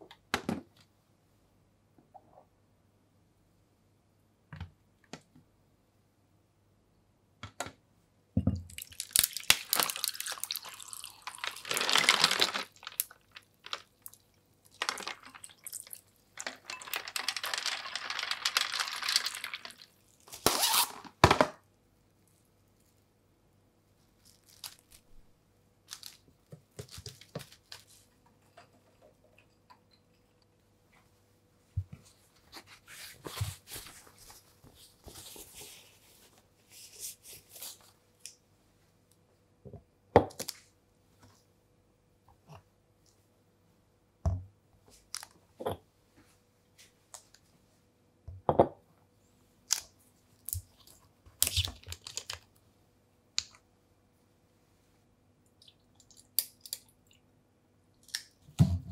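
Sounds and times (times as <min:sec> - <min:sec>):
water pouring over ice: 0:08.7 - 0:20.3
ice cubes crunching and clinking: 0:08.8 - 0:19.9
soft handling sounds: 0:23.9 - 0:25.3, 0:25.9 - 0:38.9.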